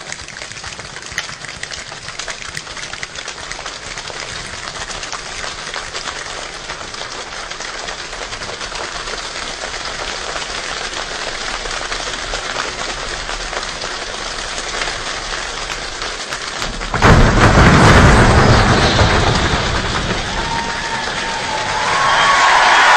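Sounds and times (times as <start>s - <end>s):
choir imitating rain with hands: 0.0s - 17.7s, 19.6s - 22.9s
loud deep burst: 16.6s - 22.9s.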